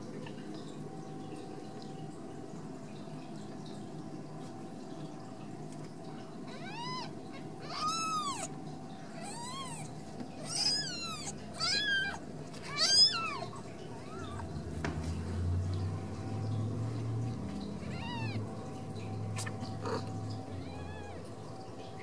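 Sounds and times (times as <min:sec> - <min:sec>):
kittens mewing: 0:06.5 - 0:14.5, 0:17.8 - 0:18.5, 0:19.4 - 0:21.3.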